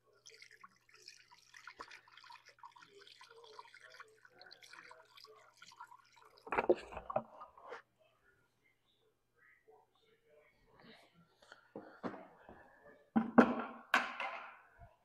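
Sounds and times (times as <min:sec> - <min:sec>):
liquid trickling through funnel: 0:00.0 - 0:07.5.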